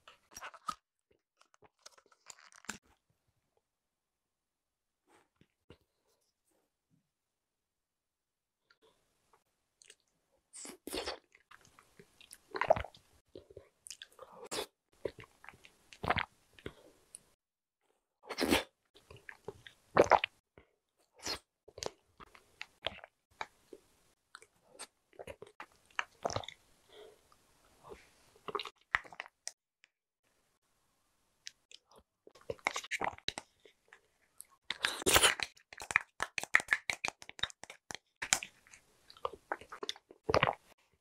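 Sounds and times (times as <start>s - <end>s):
wet chewing: 34.6s - 40.6s.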